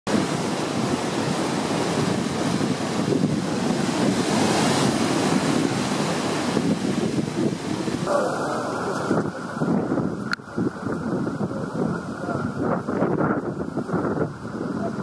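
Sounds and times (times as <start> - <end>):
storm surf breaking: 0.1 - 15.0
wind buffeting microphone: 0.1 - 15.0.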